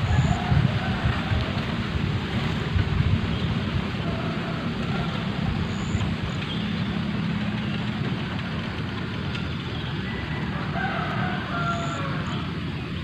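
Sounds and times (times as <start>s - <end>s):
wind rumbling on microphone: 0.0s - 13.0s.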